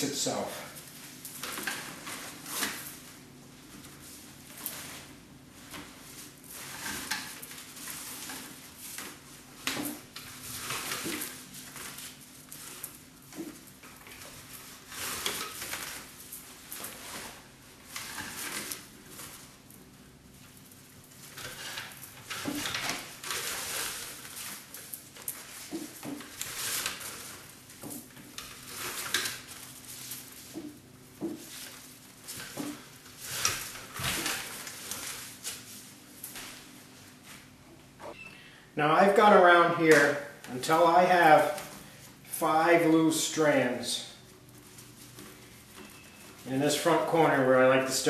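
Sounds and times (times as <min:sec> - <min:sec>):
faint steady hum: 0:00.0 - 0:48.0
paper cord rustling: 0:00.8 - 0:37.5.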